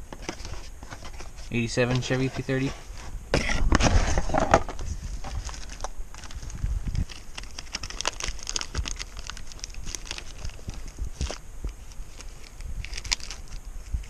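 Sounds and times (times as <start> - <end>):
plastic wrap crinkling: 5.2 - 14.0.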